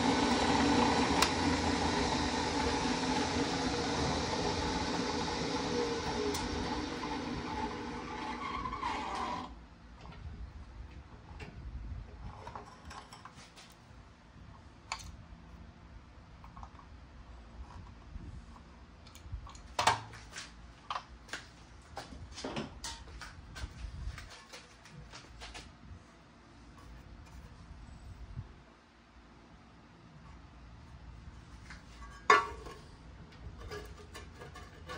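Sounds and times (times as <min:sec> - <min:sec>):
drill press wire brush running: 0:00.0 - 0:09.6.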